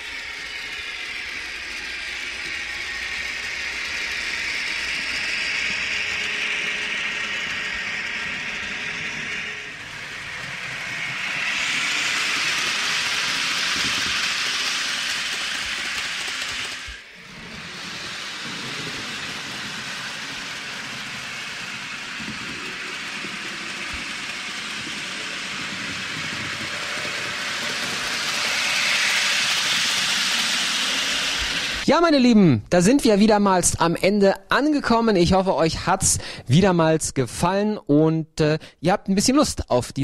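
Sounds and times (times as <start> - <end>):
model train wagons rolling: 0.0 - 32.0.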